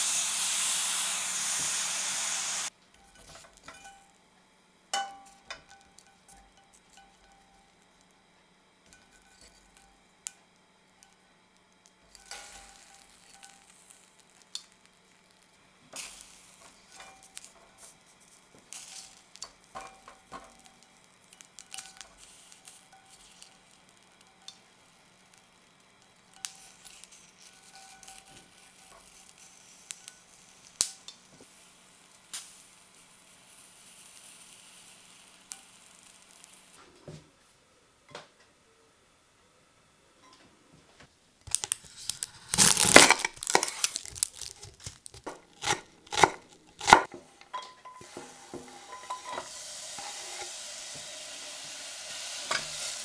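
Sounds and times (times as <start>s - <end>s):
corn sizzling in a frying pan: 0.0s - 37.1s, 41.4s - 53.0s
metal tongs scraping a pan: 12.1s - 13.9s, 26.3s - 30.2s, 42.0s - 50.7s, 52.2s - 53.0s.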